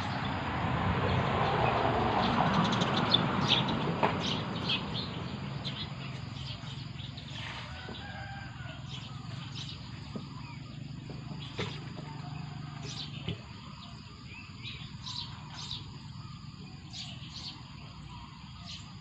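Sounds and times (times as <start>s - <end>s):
small birds chirping: 2.2s - 19.0s.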